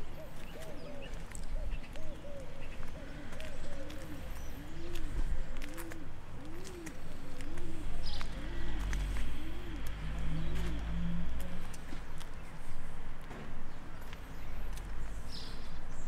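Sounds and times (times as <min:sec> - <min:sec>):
pigeon cooing: 0:00.0 - 0:11.8.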